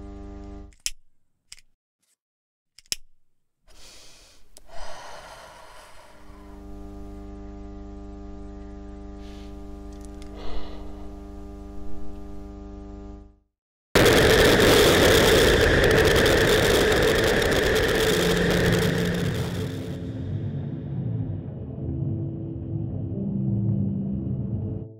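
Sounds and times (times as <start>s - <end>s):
electrical hum: 0.0s - 0.8s, 4.4s - 13.4s, 14.0s - 24.9s
loud burst of noise: 9.2s - 11.2s, 14.0s - 22.2s.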